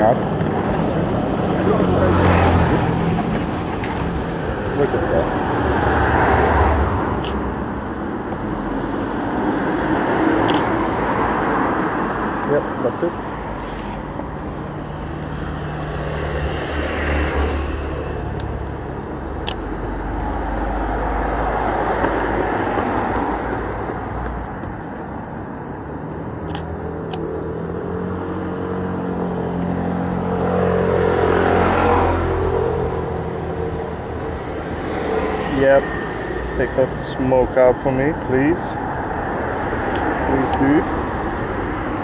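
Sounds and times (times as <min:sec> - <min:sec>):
traffic engines humming: 0:00.0 - 0:42.0
vehicles passing by: 0:00.0 - 0:42.0.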